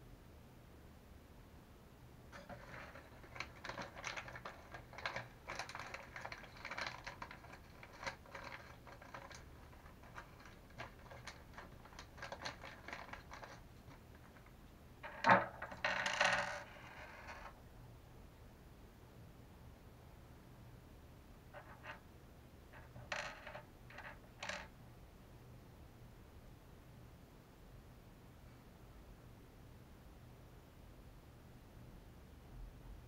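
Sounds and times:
small parts clicking and rustling: 0:02.3 - 0:17.6, 0:22.8 - 0:24.7.

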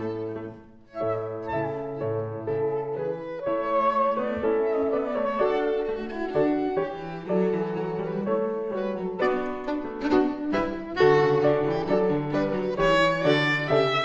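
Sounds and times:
cello: 0:00.0 - 0:14.0
piano: 0:00.0 - 0:14.0
violin: 0:00.0 - 0:14.0.

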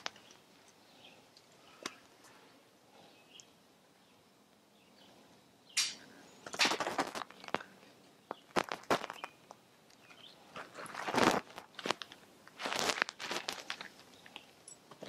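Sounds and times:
hand handling noise: 0:05.8 - 0:15.0
rustling: 0:05.9 - 0:15.0.

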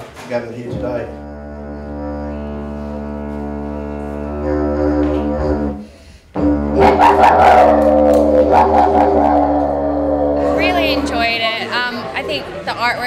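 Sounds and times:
didgeridoo drone: 0:01.0 - 0:12.6.

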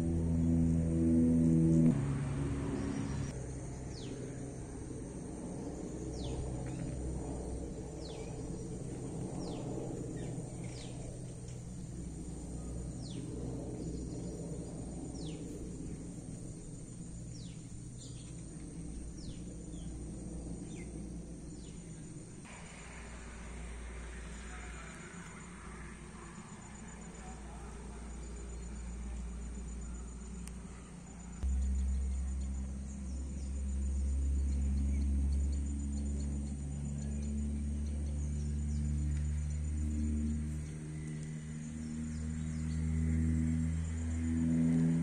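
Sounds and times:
faint insect trill: 0:00.0 - 0:45.0
steady low rumble: 0:00.0 - 0:45.0.

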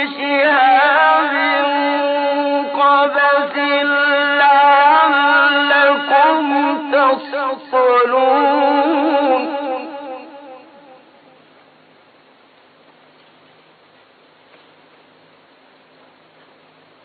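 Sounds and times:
man chanting: 0:00.0 - 0:11.1.

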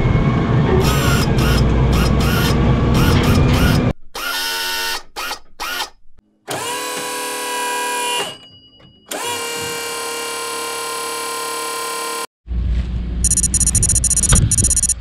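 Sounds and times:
faint high tones: 0:13.3 - 0:15.0.

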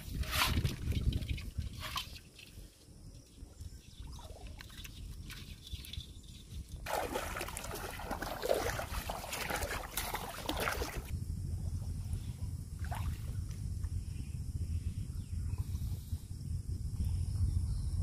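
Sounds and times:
water splashing from wading: 0:06.9 - 0:11.1.

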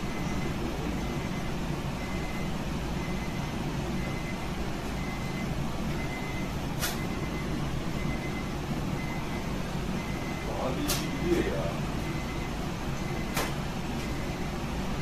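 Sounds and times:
sharp click: 0:10.8 - 0:11.1, 0:13.3 - 0:13.6.

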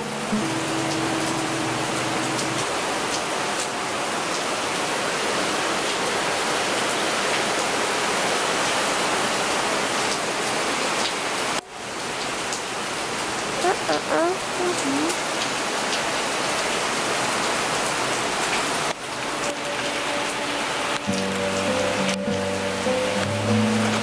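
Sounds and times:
heavy rain: 0:00.0 - 0:24.0
raindrop ticks: 0:00.4 - 0:04.5, 0:18.5 - 0:24.0.

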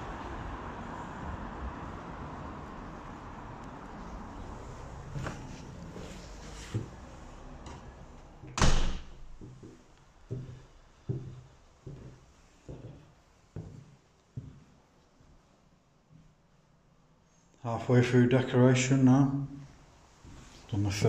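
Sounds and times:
door slamming: 0:08.5 - 0:09.3
footsteps on wooden floorboards: 0:09.3 - 0:14.7.

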